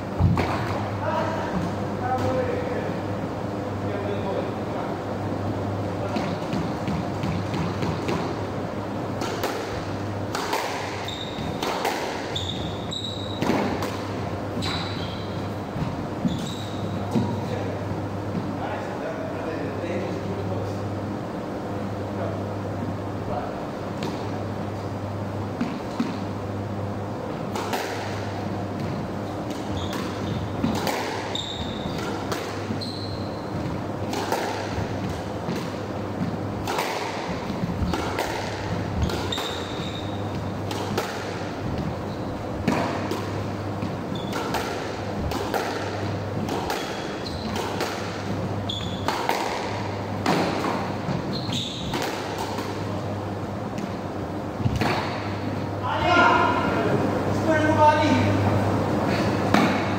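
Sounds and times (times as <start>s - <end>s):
squash ball hitting rackets and walls: 0.0s - 2.8s, 6.0s - 17.6s, 25.5s - 56.7s, 59.1s - 59.9s
shoes squeaking on wooden floor: 11.0s - 11.6s, 12.3s - 13.6s, 14.5s - 17.4s, 29.6s - 32.0s, 32.6s - 33.8s, 39.0s - 40.6s, 43.8s - 44.5s, 46.8s - 47.6s, 48.6s - 49.1s, 51.0s - 52.0s.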